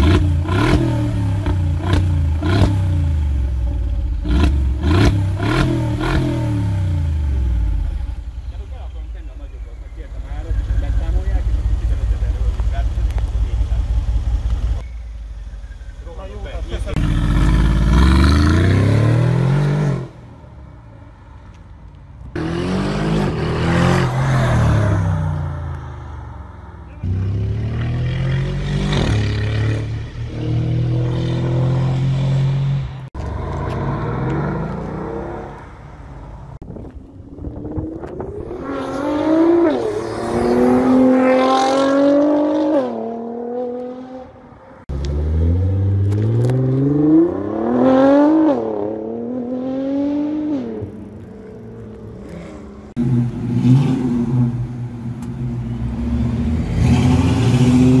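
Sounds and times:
low engine rumble: 7.1 - 17.0
car engines accelerating hard: 37.2 - 58.0.

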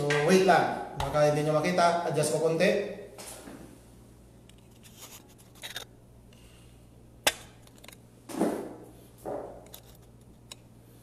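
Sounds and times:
phone mount scrapes: 4.6 - 5.9.

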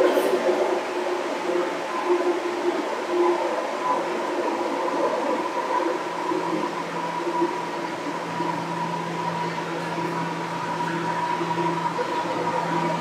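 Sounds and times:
train wheels rumbling on rail: 0.0 - 13.0
train motor whine: 6.7 - 13.0.

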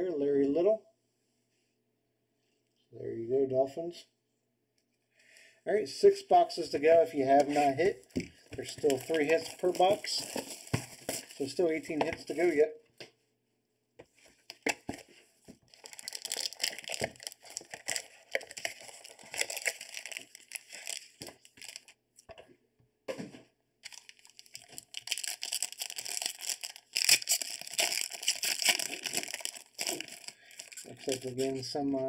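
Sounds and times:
foil wrapper crinkling and tearing: 8.4 - 12.6, 14.4 - 22.0, 23.8 - 31.6.

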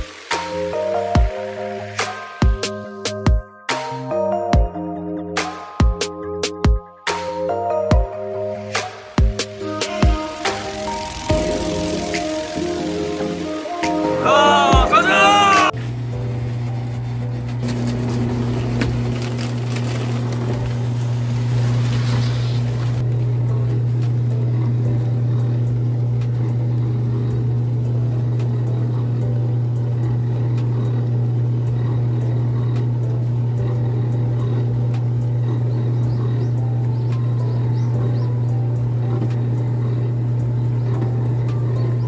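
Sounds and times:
car engine and road noise: 9.3 - 14.1, 15.7 - 25.0
hiss: 9.4 - 14.1, 21.4 - 23.0.

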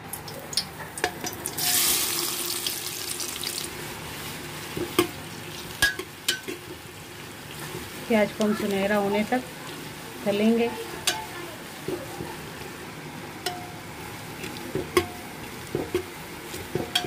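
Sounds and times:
onions sizzling in hot oil: 0.1 - 17.0
metal spoon clinking on pot: 16.8 - 17.0.

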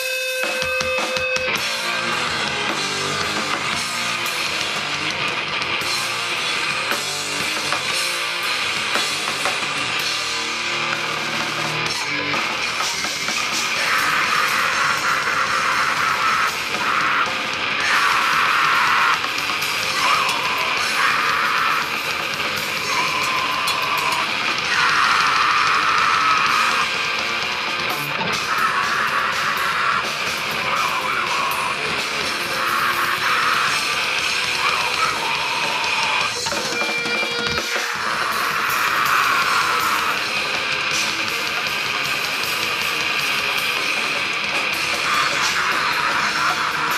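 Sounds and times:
distorted electric guitar: 0.0 - 46.9
drums: 0.0 - 46.9
screamed vocal: 10.7 - 41.6, 42.2 - 46.9.

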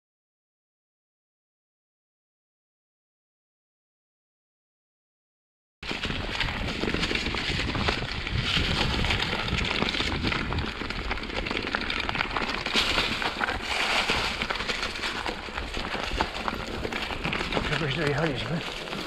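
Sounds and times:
bike tyres rattling over ground: 5.8 - 19.0
wind rushing on microphone: 5.9 - 11.6.

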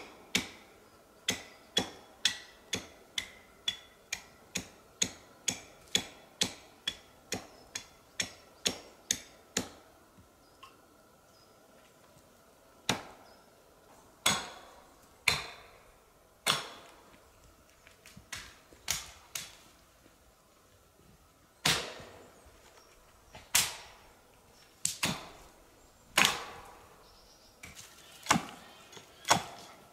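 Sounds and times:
axe chopping wood: 12.9 - 13.2, 14.2 - 15.7, 16.4 - 17.0, 21.6 - 22.1, 24.9 - 25.4, 26.2 - 26.8, 27.6 - 28.6, 29.2 - 29.7.

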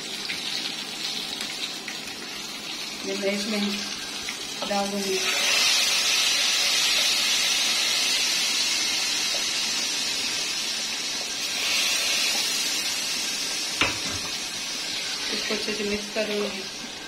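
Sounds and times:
oil sizzling: 0.0 - 17.0.

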